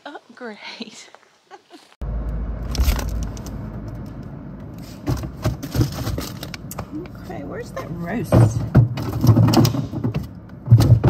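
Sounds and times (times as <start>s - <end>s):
refrigerator low rumble: 2.0s - 11.0s
items scraping in refrigerator: 4.8s - 6.6s.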